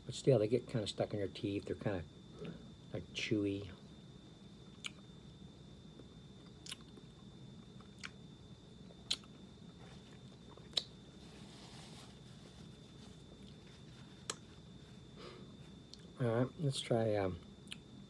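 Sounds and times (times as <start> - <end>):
mouth clicks and smacks: 4.7 - 5.0, 6.6 - 7.0, 9.0 - 9.4, 10.6 - 11.0
chewing gummy snacks: 6.4 - 8.2, 8.9 - 9.4, 10.1 - 11.0
soft rustle: 11.1 - 15.9.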